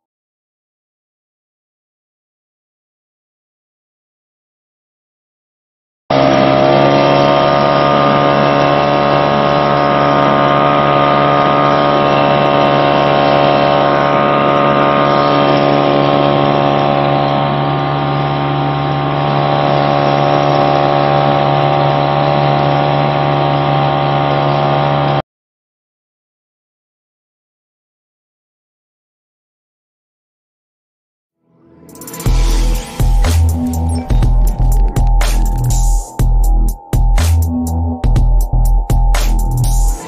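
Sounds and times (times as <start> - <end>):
outboard motor running: 6.1 - 25.2, 32.0 - 40.0.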